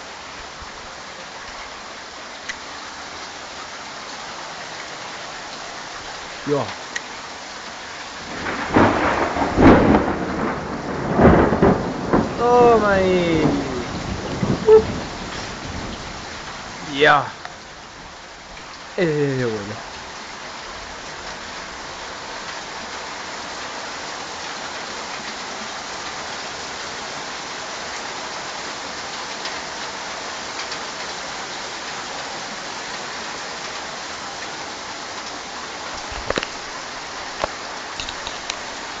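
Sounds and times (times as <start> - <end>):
torrential rain hissing: 0.0 - 39.0.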